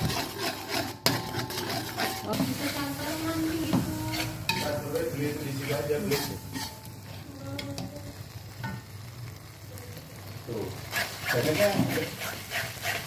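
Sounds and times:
metal spatula scraping wok: 0:00.0 - 0:07.9, 0:10.8 - 0:13.0
sauce sizzling in a wok: 0:00.0 - 0:13.0.

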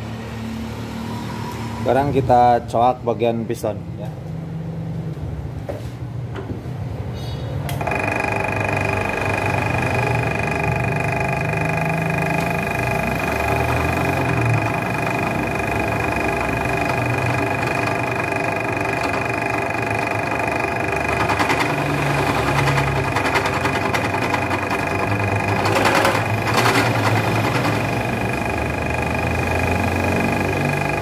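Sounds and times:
cutter cutting metal: 0:07.8 - 0:31.0
drill press motor whine: 0:07.8 - 0:31.0.

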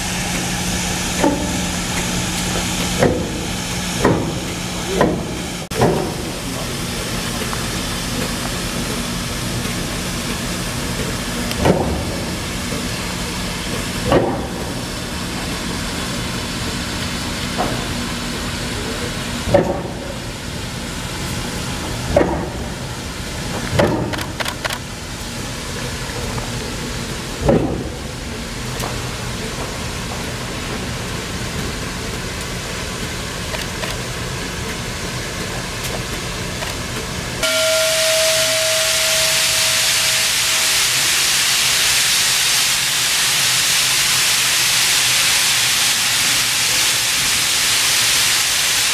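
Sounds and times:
steam hissing: 0:37.4 - 0:48.9.

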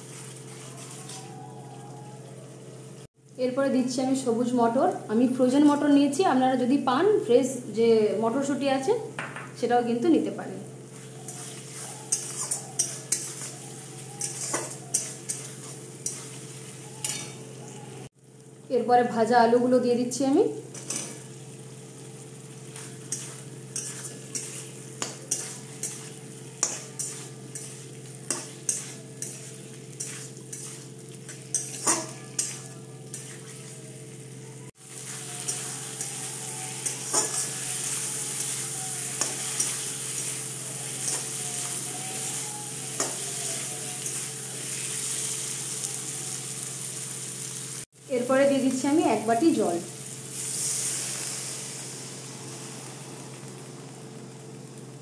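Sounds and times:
metal spatula scraping wok: 0:00.0 - 0:01.3, 0:10.9 - 0:17.8, 0:20.7 - 0:21.4, 0:22.6 - 0:45.8
masala sizzling: 0:00.0 - 0:55.0.

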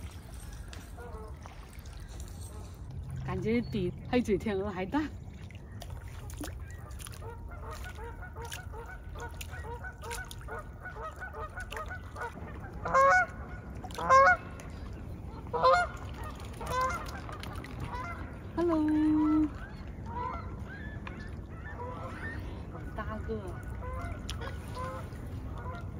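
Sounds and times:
geese honking: 0:06.7 - 0:14.4, 0:15.5 - 0:18.3, 0:19.2 - 0:25.9.

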